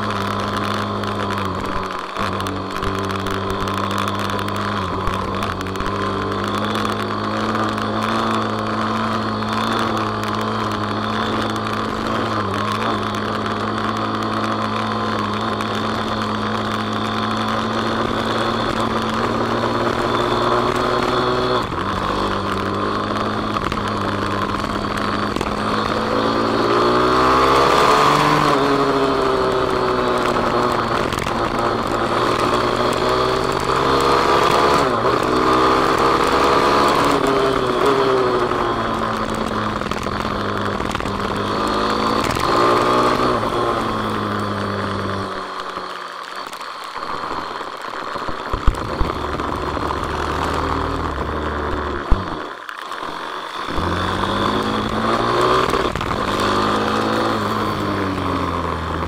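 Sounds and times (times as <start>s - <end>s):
motorcycle engine running hard: 0.0s - 59.0s
wind rush on microphone: 47.0s - 52.5s.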